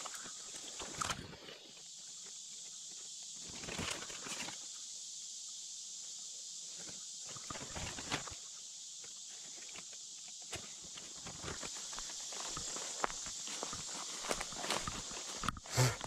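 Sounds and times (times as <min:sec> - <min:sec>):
insect chorus: 0:00.0 - 0:16.0
undergrowth rustling and crackling: 0:10.8 - 0:16.0.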